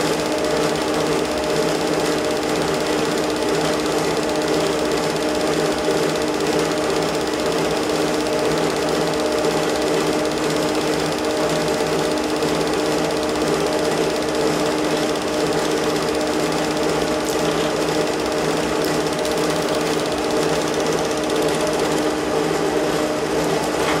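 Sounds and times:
movie projector clattering: 0.0 - 22.2.

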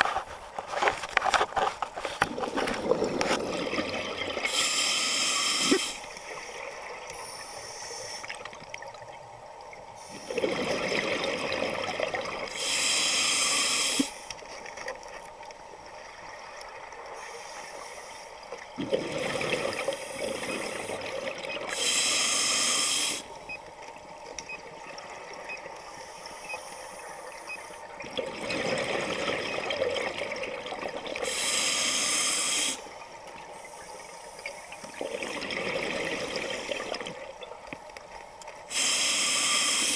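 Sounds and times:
diver breathing through regulator: 21.8 - 23.3, 31.2 - 32.9, 38.7 - 39.9.

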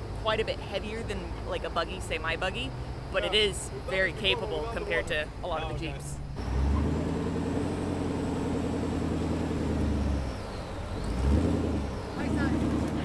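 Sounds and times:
vehicle engine at low revs: 2.6 - 13.0.

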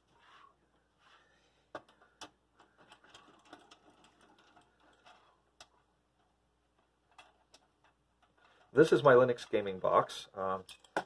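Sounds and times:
small clicks of computer parts: 1.7 - 8.7.

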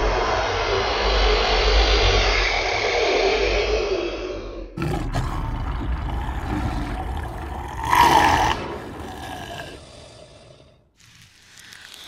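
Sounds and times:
monster roar: 4.8 - 11.2.

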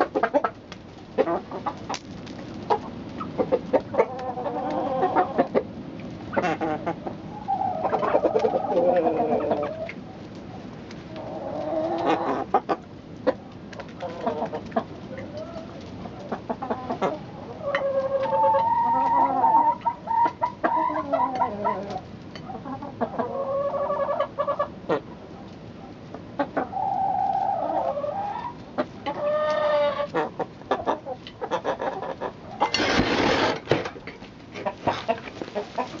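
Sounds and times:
chickens clucking: 0.0 - 36.0.

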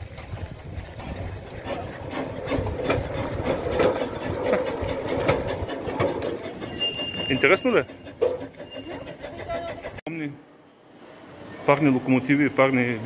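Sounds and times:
steam locomotive rumbling: 0.0 - 13.0
mechanical clanks and clicks: 1.0 - 10.0.

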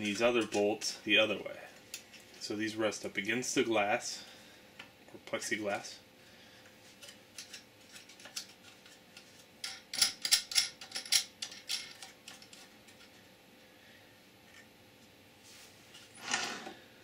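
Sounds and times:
small hardware clicking and clinking: 9.6 - 13.1.

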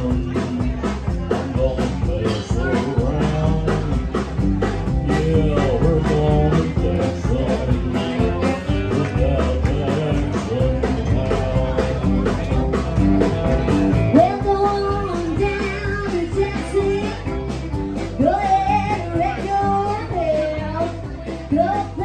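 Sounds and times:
live band playing: 0.0 - 22.0
woman singing: 14.1 - 17.4, 18.2 - 22.0.

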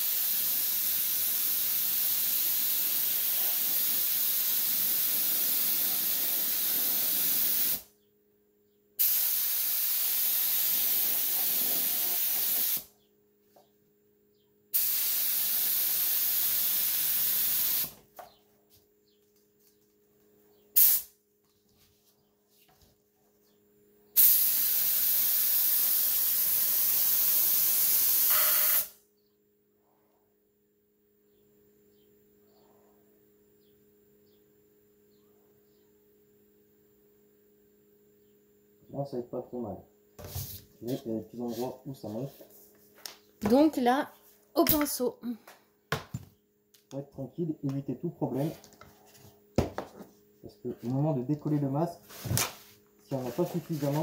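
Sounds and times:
spray gun hissing: 0.0 - 7.8, 9.0 - 12.8, 14.8 - 18.0, 24.2 - 29.0.

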